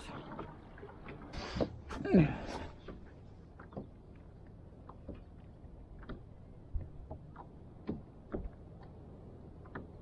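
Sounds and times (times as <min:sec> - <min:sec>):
faint knocks and clicks: 0:02.8 - 0:09.0, 0:09.6 - 0:10.0.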